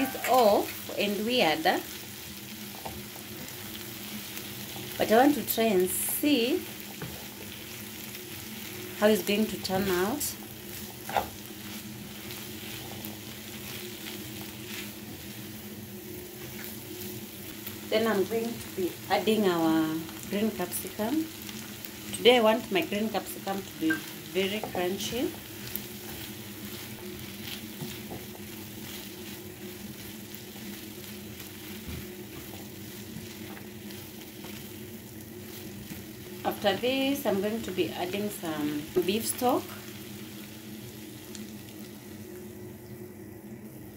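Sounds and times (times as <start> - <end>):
food sizzling in a frying pan: 0.0 - 43.9
spatula stirring and scraping: 1.9 - 5.1, 6.6 - 17.9, 23.8 - 36.4.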